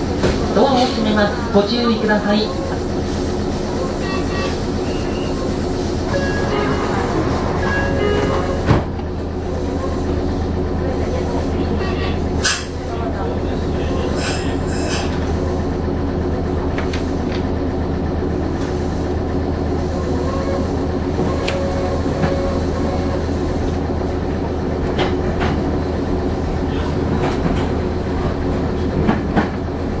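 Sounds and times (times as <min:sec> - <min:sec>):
electric train motor hum: 0:00.0 - 0:12.4.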